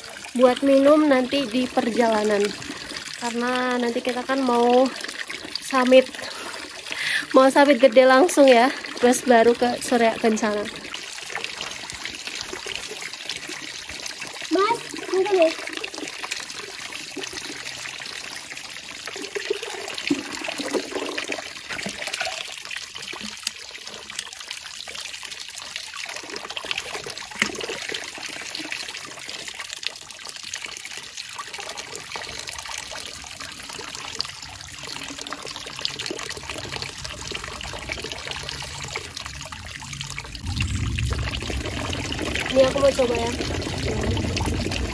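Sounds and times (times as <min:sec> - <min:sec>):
spring water pouring into bottle: 0:00.0 - 0:44.9.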